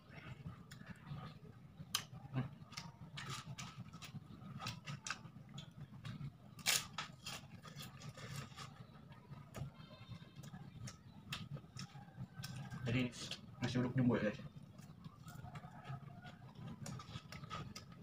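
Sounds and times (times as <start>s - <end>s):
person chewing with crunches: 0.0s - 8.9s, 14.8s - 18.0s.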